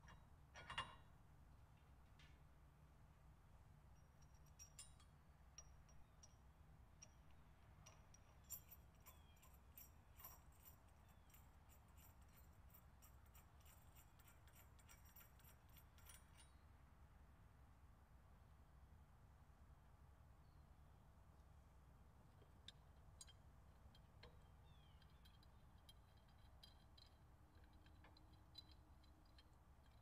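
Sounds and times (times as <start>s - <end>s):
metallic clinks of nut turning: 3.9s - 16.6s, 22.4s - 30.0s.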